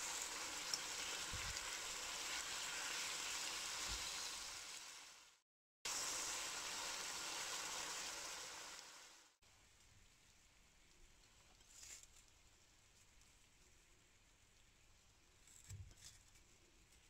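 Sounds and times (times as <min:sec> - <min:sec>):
meat sizzling in a wok: 0:00.0 - 0:09.4.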